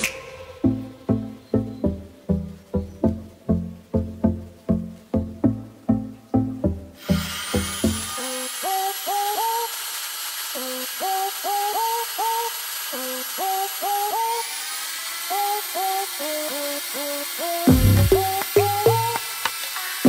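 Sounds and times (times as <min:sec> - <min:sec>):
melody of sliding short notes: 0:00.0 - 0:08.4.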